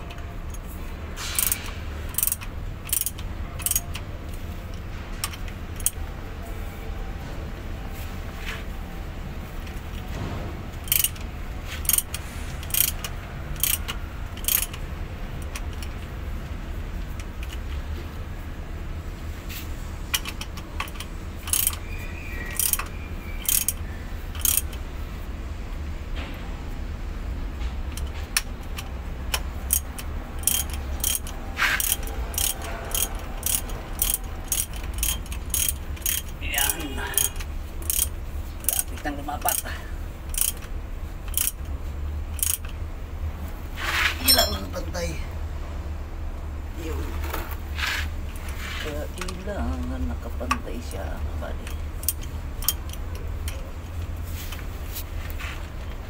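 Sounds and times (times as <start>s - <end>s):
ratchet wrench clicking: 0.0s - 6.0s, 10.7s - 16.1s, 17.0s - 17.8s, 20.1s - 24.8s, 27.9s - 42.8s, 51.6s - 54.6s.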